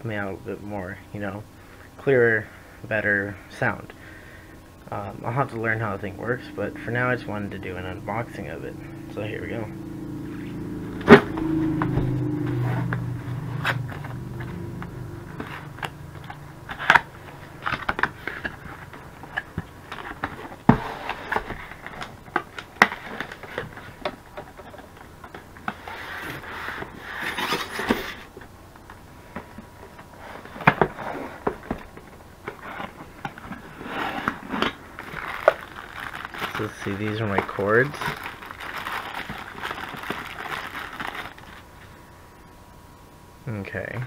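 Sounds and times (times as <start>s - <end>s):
cardboard rustling: 29.4s - 41.7s
plastic wrap crinkling: 34.6s - 41.7s.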